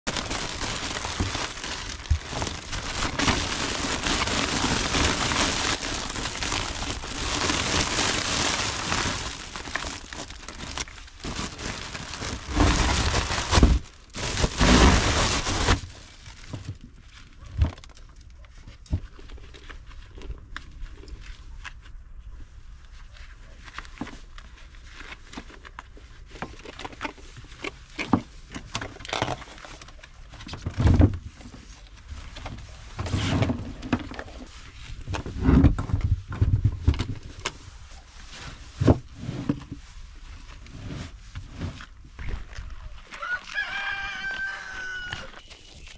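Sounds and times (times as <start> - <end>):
plastic sack crinkling: 0.0 - 18.2, 41.5 - 45.9.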